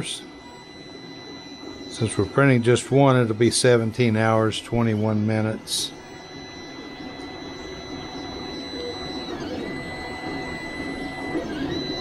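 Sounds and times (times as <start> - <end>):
stepper motors whining: 0.0 - 12.0
low motor whir: 5.6 - 12.0.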